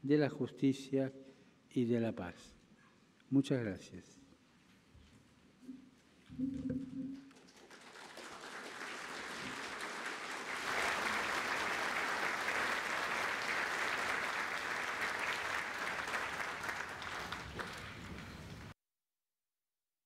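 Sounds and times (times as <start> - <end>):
audience applauding: 7.2 - 18.7.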